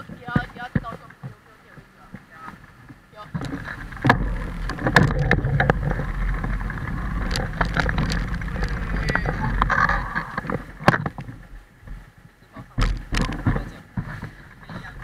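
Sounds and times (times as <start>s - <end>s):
wind rumbling on microphone: 0.0s - 15.0s
camera clicks and rattles: 3.4s - 11.4s, 12.8s - 14.4s.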